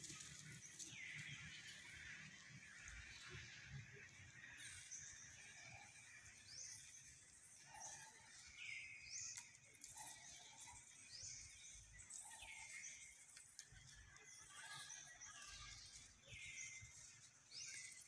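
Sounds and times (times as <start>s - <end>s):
faint outdoor ambience: 0.0s - 18.0s
bird chirping: 4.0s - 18.0s.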